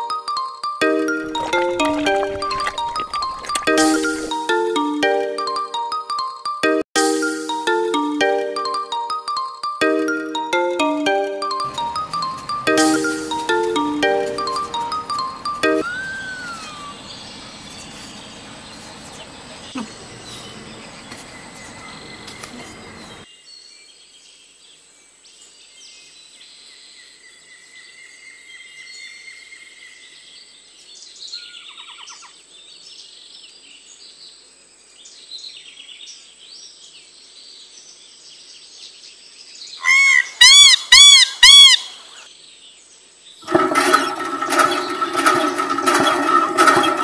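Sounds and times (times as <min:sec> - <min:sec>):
busy sound with tones and clicks: 0:00.8 - 0:05.6, 0:09.8 - 0:16.9
whistled bird calls: 0:15.8 - 0:18.9, 0:39.8 - 0:42.3
bird chirps and tweets: 0:15.8 - 0:40.2.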